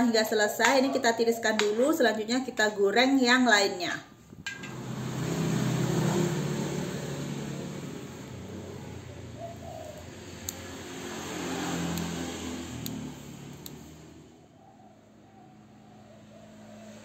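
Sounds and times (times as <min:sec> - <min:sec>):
road traffic rumble: 0:04.1 - 0:17.0.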